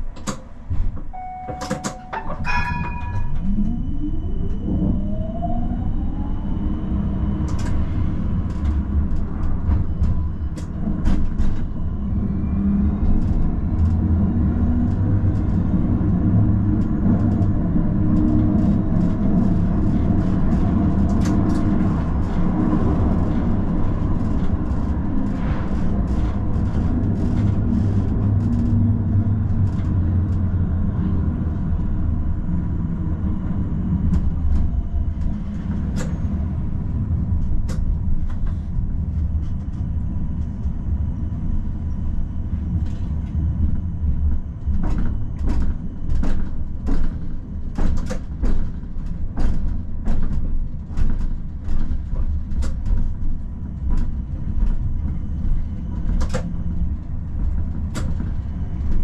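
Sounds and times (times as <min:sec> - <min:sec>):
clicks and rattles from rails: 0:00.0 - 0:03.4, 0:44.6 - 0:59.0
tram rumbling: 0:00.0 - 0:59.0
tram motor whine rising: 0:01.1 - 0:47.1
short electronic tones: 0:01.2 - 0:04.6.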